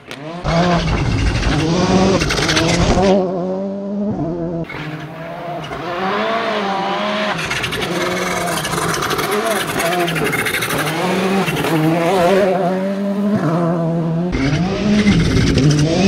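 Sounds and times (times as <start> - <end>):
tyres scrabbling on gravel: 0.0 - 3.2
rally car engine at full throttle: 0.0 - 16.0.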